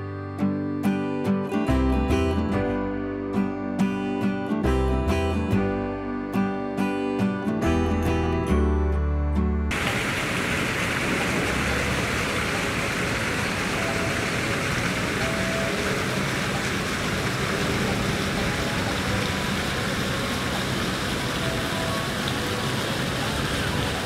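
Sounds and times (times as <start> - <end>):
distant traffic hum: 9.7 - 24.0.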